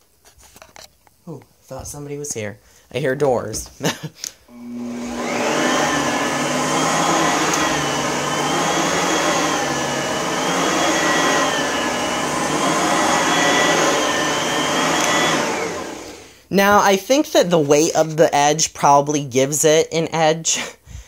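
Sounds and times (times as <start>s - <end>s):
vacuum cleaner motor whining: 4.5s - 16.4s.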